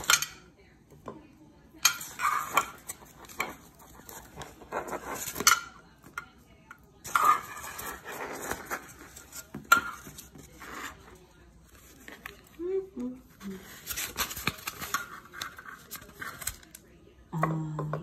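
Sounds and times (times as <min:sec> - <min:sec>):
scrapes and rustles: 0:02.0 - 0:05.6, 0:07.0 - 0:12.6.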